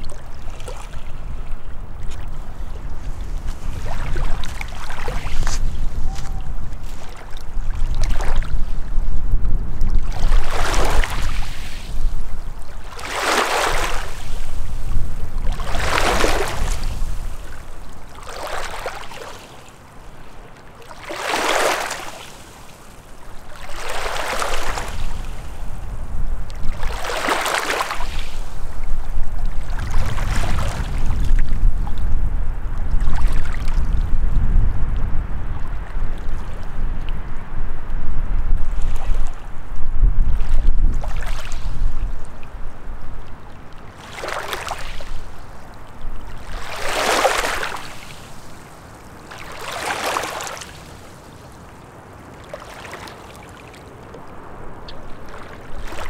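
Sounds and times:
wind rumble on microphone: 0.0s - 19.2s, 23.0s - 50.4s, 54.1s - 56.0s
waves lapping on shore: 0.0s - 37.6s, 38.6s - 39.7s, 40.3s - 56.0s.

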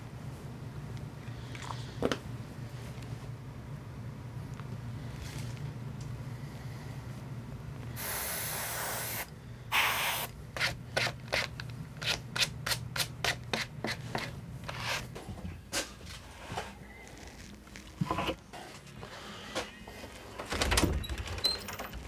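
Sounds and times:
steady low hum: 0.0s - 21.2s
airbrush hissing: 8.0s - 10.3s.

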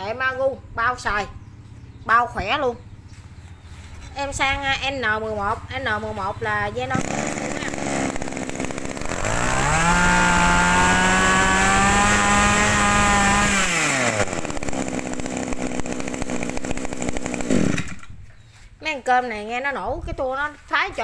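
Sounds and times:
brush-cutter engine revving: 6.2s - 18.3s.

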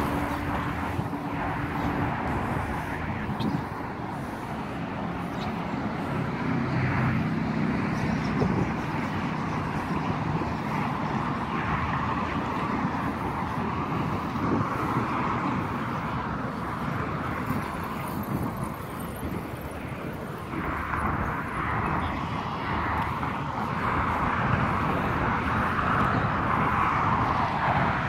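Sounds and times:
highway traffic noise: 0.0s - 28.0s.

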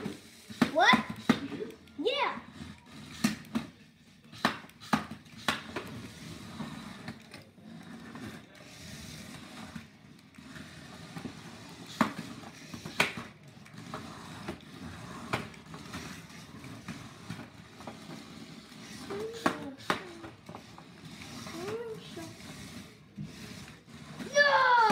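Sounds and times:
toy robot motors whirring: 0.0s - 24.9s
plastic clacks: 18.9s - 21.9s.

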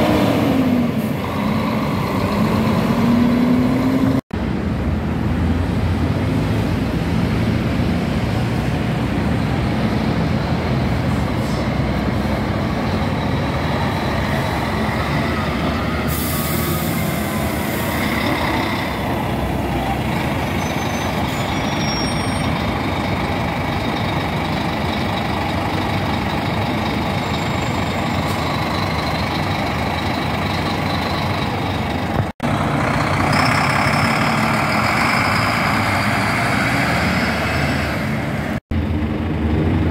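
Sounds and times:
coach engine pulling away: 6.0s - 39.9s
air brake hiss: 16.1s - 17.8s.

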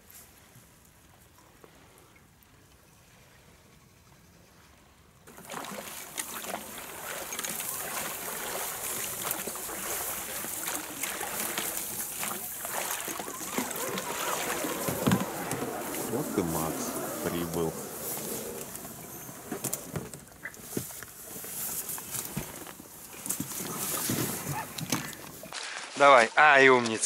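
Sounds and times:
oars splashing: 5.3s - 26.2s
reeds scraping along hull: 5.3s - 27.0s.

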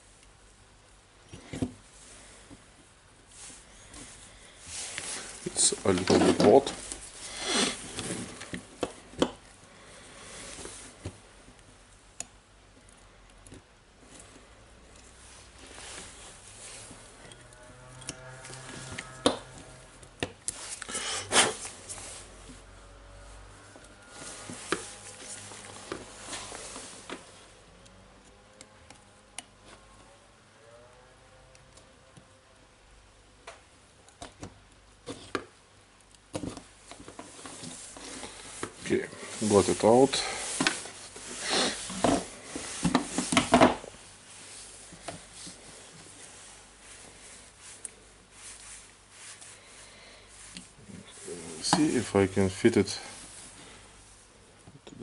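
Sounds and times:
faint handling noise: 1.2s - 20.9s, 36.1s - 55.0s
loud scrape: 20.6s - 22.4s, 23.6s - 27.1s, 37.4s - 43.6s.

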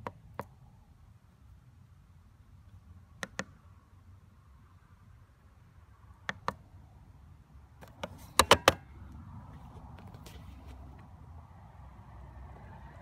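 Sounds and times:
keypad buttons clicking: 3.2s - 3.5s.

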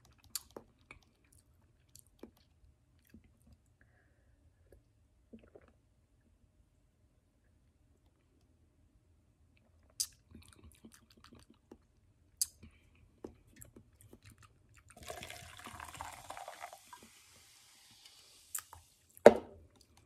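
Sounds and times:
fizzing drink pour: 14.9s - 19.1s.

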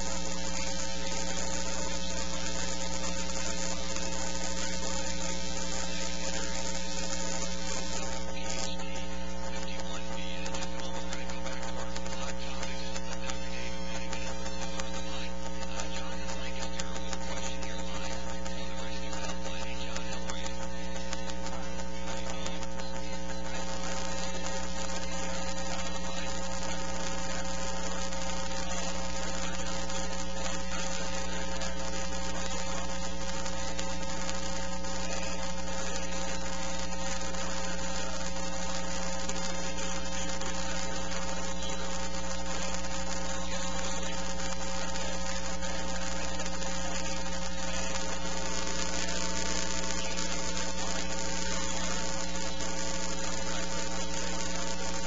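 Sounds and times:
constant hiss: 0.0s - 55.0s
electrical mains hum and buzz: 0.0s - 55.0s.

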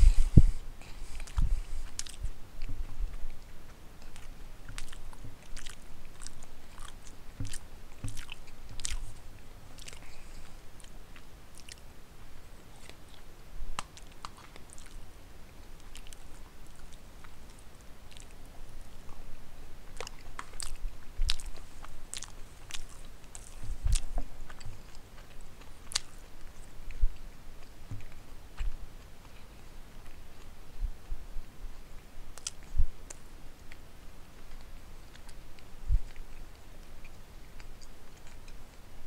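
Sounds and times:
person chewing food: 0.0s - 39.0s
wet mouth clicks and smacks: 1.2s - 9.2s, 13.8s - 15.0s, 32.4s - 33.8s.

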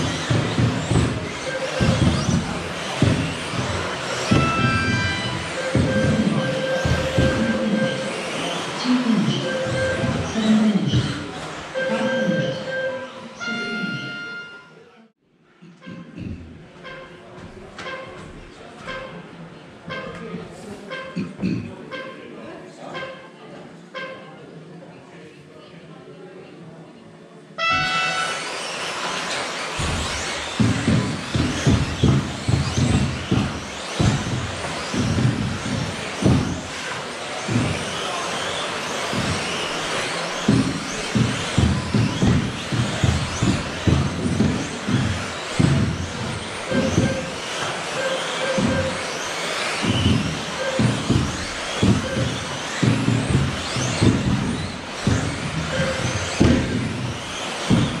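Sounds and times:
tyre and drivetrain noise: 0.0s - 13.5s, 27.9s - 58.0s
low thumps: 0.0s - 13.6s, 29.8s - 58.0s
rc car motor whine: 0.0s - 14.8s, 27.8s - 58.0s.

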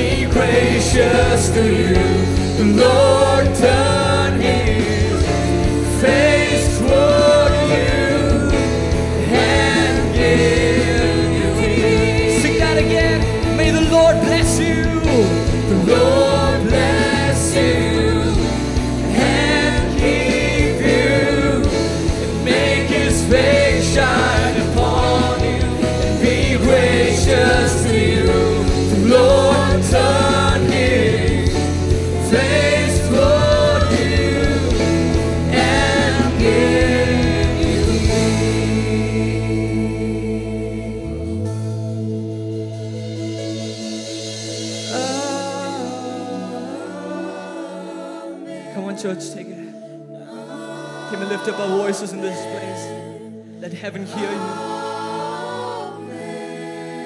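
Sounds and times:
bass guitar: 0.0s - 46.0s
drums: 0.0s - 48.1s
man singing: 10.0s - 17.3s, 44.9s - 47.2s.

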